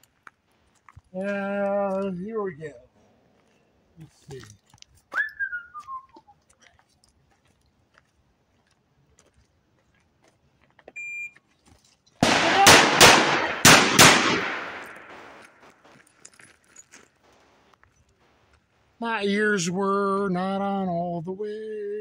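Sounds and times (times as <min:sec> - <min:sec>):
revolver shots echoing: 0:12.2 - 0:15.5.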